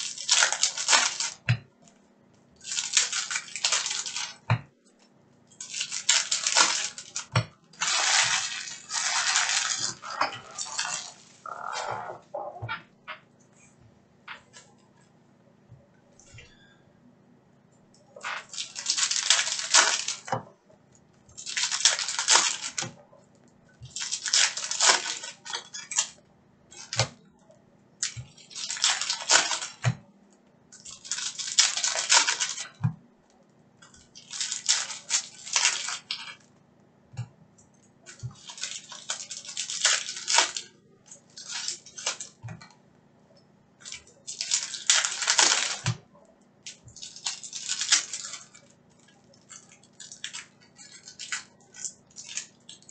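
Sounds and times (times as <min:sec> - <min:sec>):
foil packs tearing open: 0:00.0 - 0:01.4, 0:02.6 - 0:04.4, 0:05.6 - 0:11.6, 0:18.4 - 0:20.3, 0:21.4 - 0:22.8, 0:23.9 - 0:26.1, 0:28.0 - 0:29.8, 0:30.8 - 0:32.8, 0:34.2 - 0:36.4, 0:38.3 - 0:40.7, 0:41.3 - 0:42.4, 0:43.8 - 0:45.9, 0:46.7 - 0:48.6, 0:49.5 - 0:52.9.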